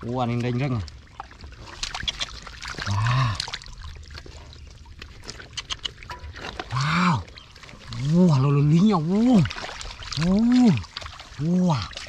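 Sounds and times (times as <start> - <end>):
splashing in muddy water: 0.0 - 12.0
man exclaiming: 11.4 - 11.9.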